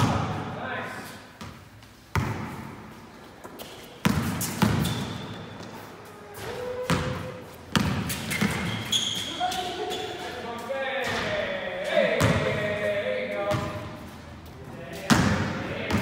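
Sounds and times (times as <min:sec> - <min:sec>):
basketball bouncing on court: 0:01.4 - 0:02.8, 0:04.0 - 0:05.7, 0:06.8 - 0:10.0, 0:12.2 - 0:12.7, 0:15.0 - 0:16.0
shoe squeaks: 0:03.5 - 0:10.7.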